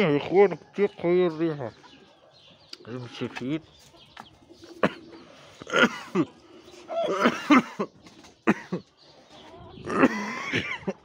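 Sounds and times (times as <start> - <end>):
man gagging and retching: 9.8 - 10.5.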